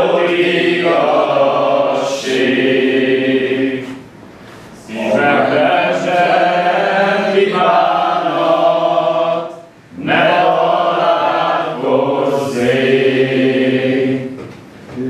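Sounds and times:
group chanting: 0:00.0 - 0:04.1, 0:04.8 - 0:14.4.

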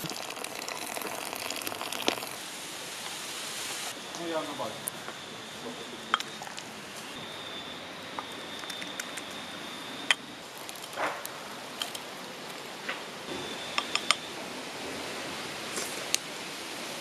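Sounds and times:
background hiss: 0:00.0 - 0:08.1.

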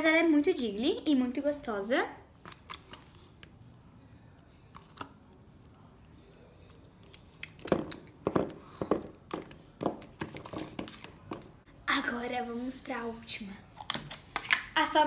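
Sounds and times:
slime squishing with wet clicks: 0:04.3 - 0:08.2.

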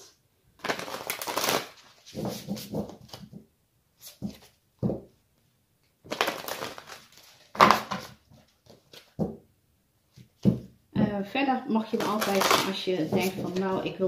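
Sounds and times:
cards shuffled by hand: 0:00.6 - 0:03.4, 0:06.1 - 0:09.2, 0:12.0 - 0:13.6.

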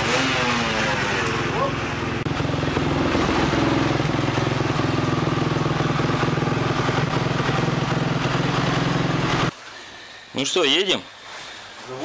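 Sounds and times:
motorcycle engine idling: 0:00.0 - 0:09.5.

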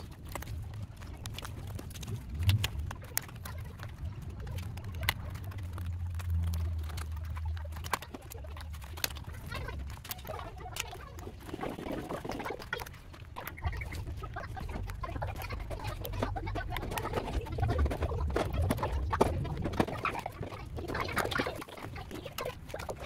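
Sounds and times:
crackle of peeling strip: 0:00.0 - 0:23.0.

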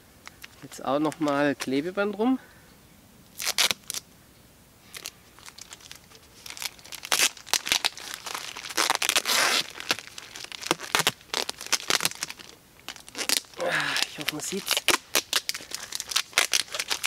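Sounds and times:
duct tape pulled off roll: 0:03.3 - 0:04.0, 0:04.9 - 0:17.0
plastic bag crinkling: 0:04.9 - 0:17.0.

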